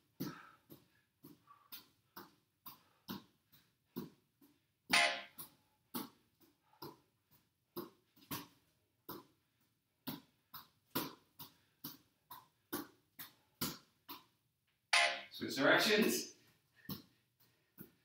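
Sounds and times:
man breathing hard: 0.1s - 1.9s.

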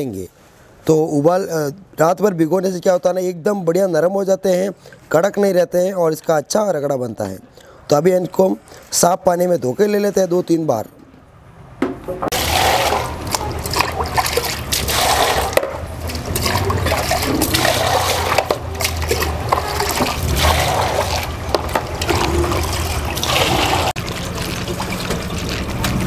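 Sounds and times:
water pouring and sloshing: 12.2s - 26.0s.

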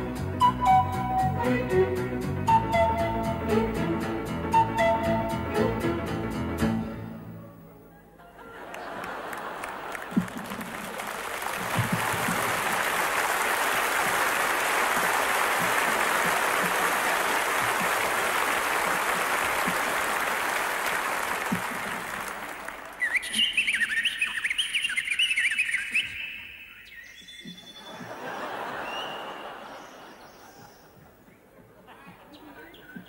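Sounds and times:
audience applauding: 8.6s - 23.2s
bird-like warbling whistles: 23.0s - 28.0s.

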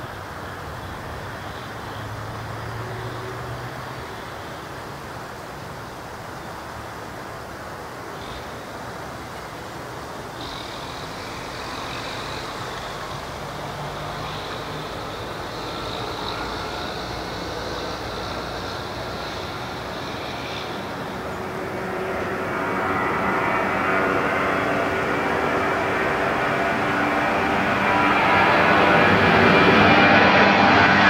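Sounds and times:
jet engine whine and rush: 4.1s - 31.0s.

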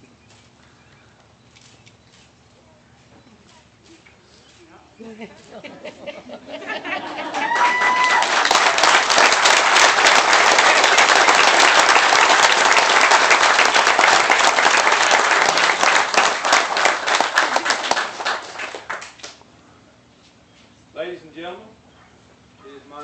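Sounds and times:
crowd clapping: 6.8s - 19.4s.

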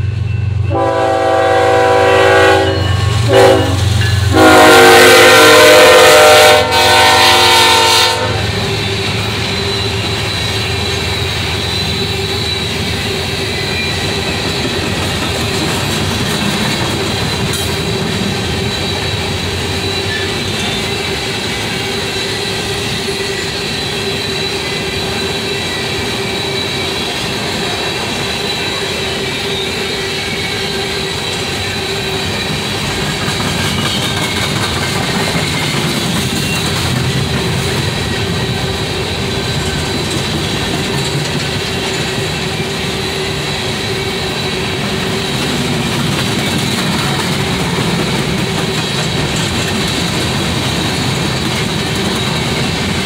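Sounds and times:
train wheels rumbling on rail: 0.0s - 53.0s
locomotive air horn: 0.7s - 8.6s
high wheel squeal: 7.0s - 53.0s.

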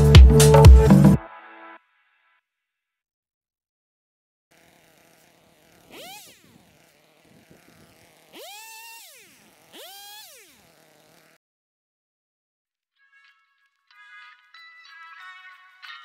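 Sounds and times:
chainsaw idling and revving: 4.5s - 11.4s.

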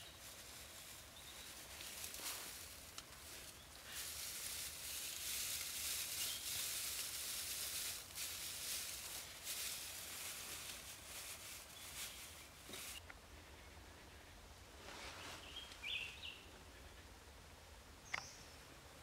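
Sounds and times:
dry straw rustling: 0.0s - 13.0s, 14.7s - 16.2s.

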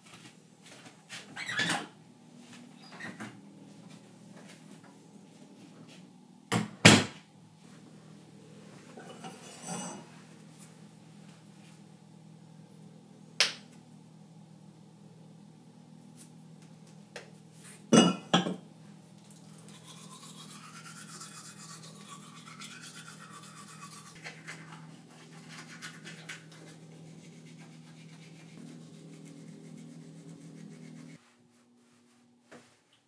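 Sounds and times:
low steady hum: 0.0s - 33.0s
toothbrush scrubbing teeth: 19.4s - 31.2s.

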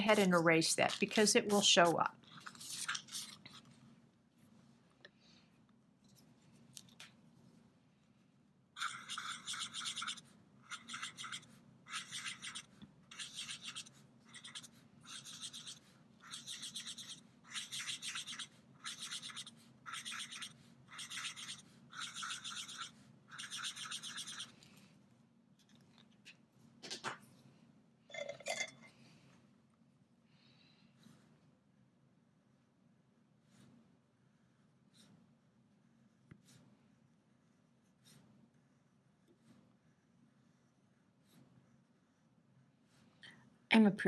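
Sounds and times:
marker scratching on plastic: 0.0s - 3.7s, 8.8s - 24.7s, 34.9s - 35.2s, 36.3s - 42.3s.

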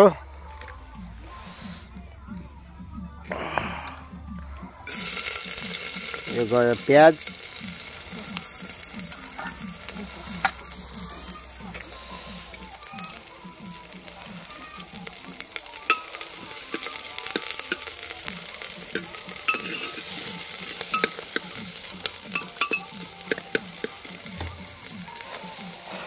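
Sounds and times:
onions sizzling in oil: 4.9s - 26.0s
ladle scraping metal pot: 18.9s - 23.6s.

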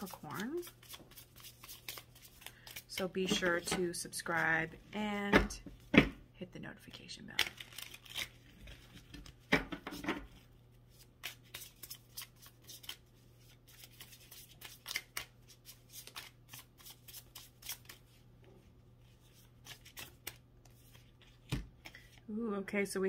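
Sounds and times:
cards being shuffled: 0.0s - 4.4s, 7.3s - 18.2s, 19.1s - 22.2s.

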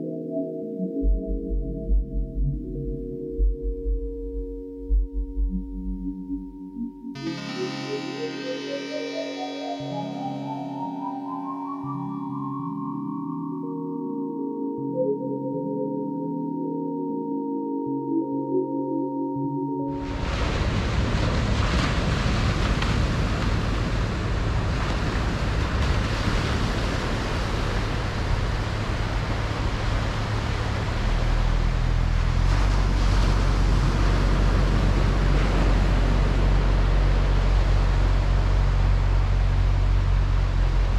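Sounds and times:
deep rumble: 1.0s - 7.1s
surf on sandy beach: 20.0s - 40.9s.

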